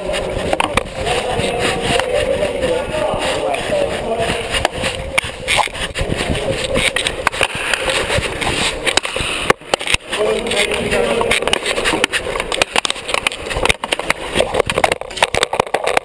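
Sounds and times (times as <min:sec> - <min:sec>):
players calling out: 0:00.0 - 0:09.0.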